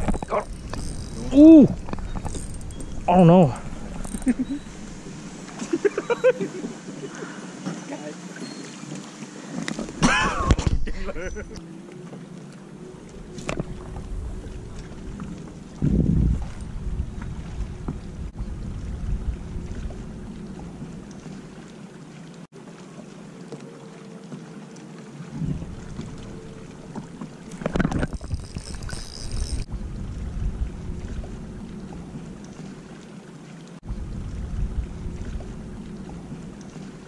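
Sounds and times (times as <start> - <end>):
water sounds: 0.0 - 37.0
wind buffeting microphone: 13.2 - 21.0, 27.7 - 32.4, 33.8 - 36.6.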